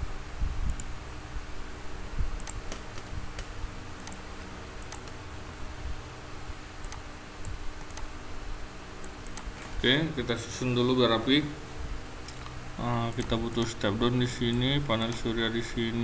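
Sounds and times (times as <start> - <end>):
low steady hum: 0.0 - 16.0
mouse and keyboard clicks: 2.4 - 4.2, 6.8 - 8.1.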